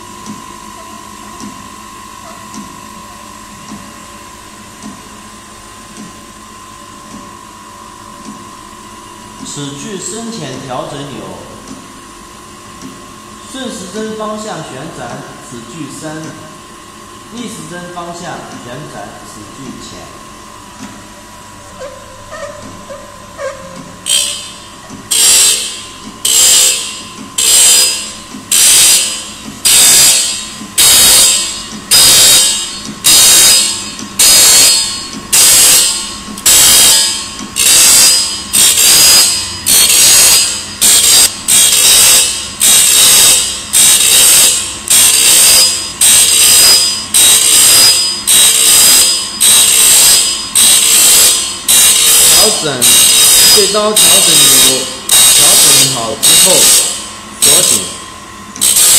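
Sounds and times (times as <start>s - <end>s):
motor hum: 0.0s - 58.9s
grinding wheel hissing against blade: 24.0s - 58.0s, 58.6s - 58.9s.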